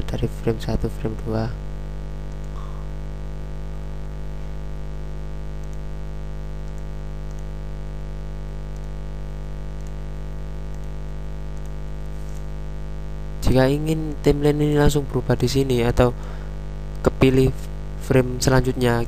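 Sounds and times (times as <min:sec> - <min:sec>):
electrical mains hum: 0:00.0 - 0:19.0
faint clicks: 0:06.6 - 0:07.5, 0:10.7 - 0:12.5.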